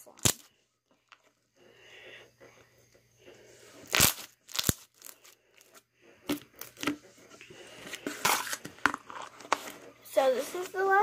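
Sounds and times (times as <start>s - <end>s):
slime popping and crackling: 3.9s - 5.2s.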